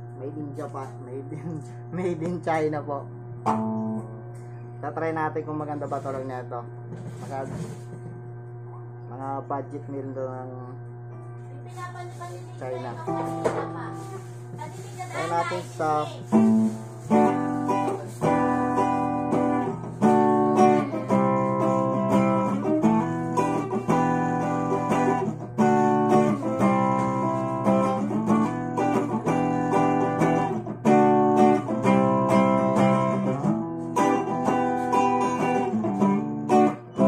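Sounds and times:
clean electric guitar chords: 0.0s - 5.6s, 12.7s - 14.5s, 15.1s - 37.0s
steady low amp hum: 0.0s - 37.0s.

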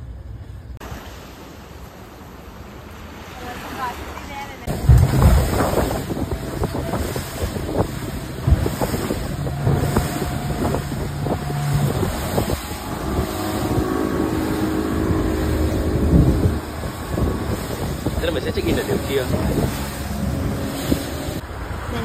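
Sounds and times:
speedboat engine running: 4.6s - 21.4s
wind buffeting microphone: 4.6s - 22.0s.

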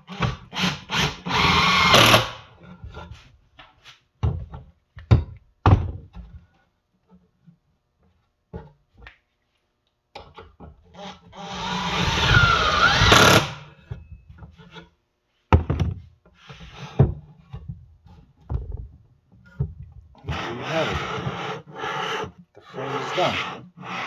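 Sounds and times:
wooden knocks and thuds: 4.2s - 6.4s, 15.5s - 16.2s, 17.0s - 20.1s
wood rubbing scrape: 20.2s - 24.0s.

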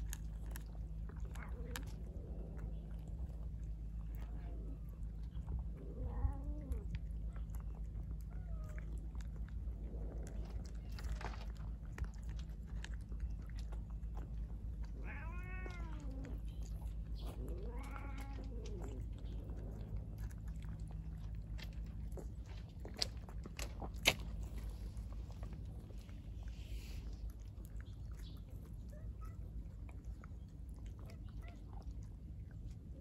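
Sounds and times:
cats crunching dry kibble: 0.0s - 33.0s
cat meowing: 15.0s - 16.4s, 17.5s - 18.9s.

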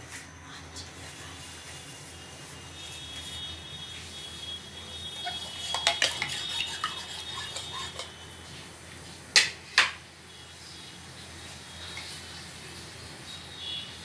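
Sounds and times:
metal spoon clinking in bowl: 5.2s - 8.2s.

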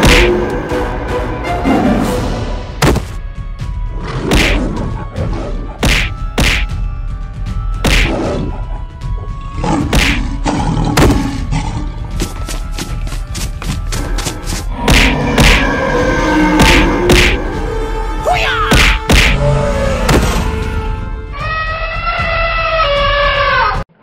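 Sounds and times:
dramatic background music: 0.0s - 23.8s
fight impact thuds and whacks: 2.8s - 3.2s, 4.3s - 4.6s, 5.8s - 6.7s, 7.8s - 8.2s, 14.9s - 15.6s, 18.7s - 19.4s.

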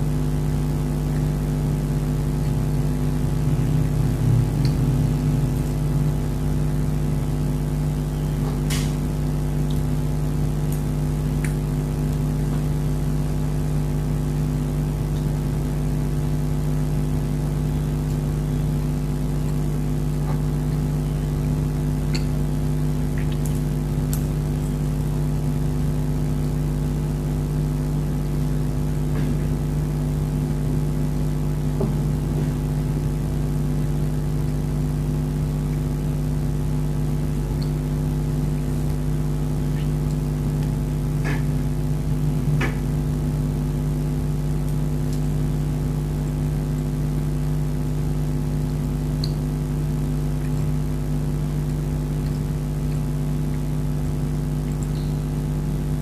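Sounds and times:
droning machine hum: 0.0s - 56.0s
faint small clicks: 49.2s - 49.4s.

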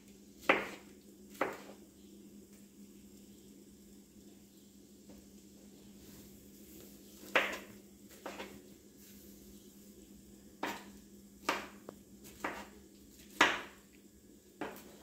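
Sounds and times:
knife chopping on wooden board: 0.4s - 0.8s, 1.4s - 1.8s, 7.3s - 8.6s, 10.6s - 13.8s, 14.6s - 15.0s.

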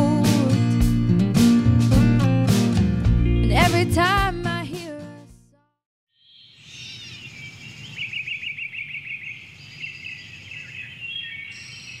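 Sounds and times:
bird trill: 6.2s - 12.0s
birds singing: 6.2s - 12.0s.

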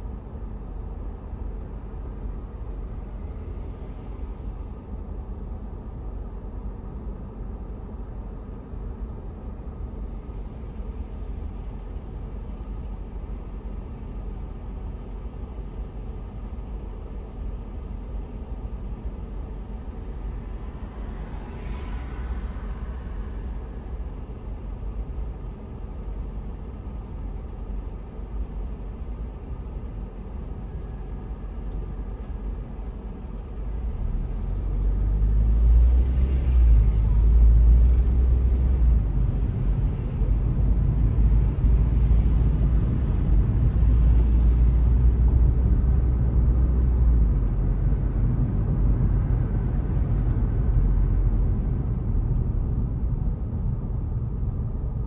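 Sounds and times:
car engine low rumble: 0.0s - 55.0s
vehicle passing by: 20.4s - 24.0s.

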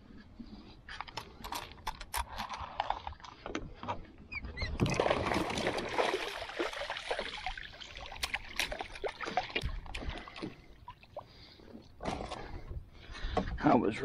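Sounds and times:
water splashing and sloshing: 0.0s - 13.6s.

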